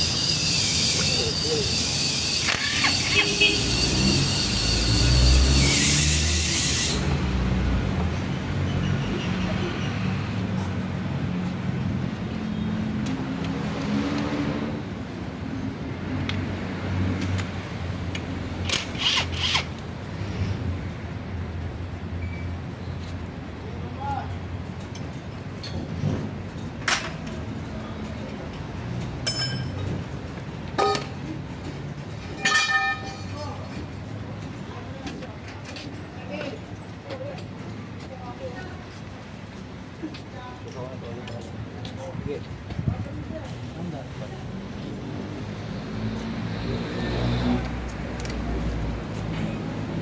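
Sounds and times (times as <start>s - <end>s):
metal tools clinking: 29.2s - 29.9s, 32.4s - 33.4s.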